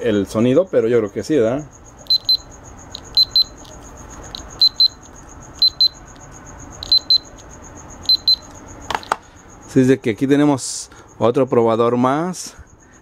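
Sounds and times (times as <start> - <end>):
buzzer double beeps: 2.0 - 3.6, 4.3 - 6.0, 6.8 - 7.3, 8.0 - 8.5.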